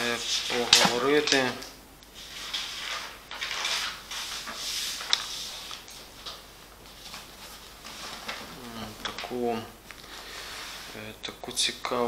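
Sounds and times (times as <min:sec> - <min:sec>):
soft rustling and handling: 0:02.1 - 0:11.0.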